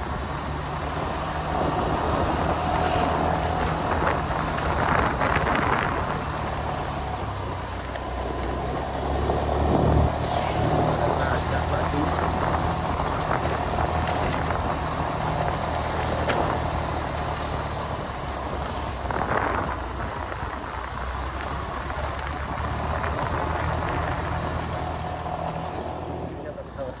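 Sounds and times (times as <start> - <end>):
road and wind noise: 0.0 - 27.0
vehicle engine running: 0.0 - 27.0.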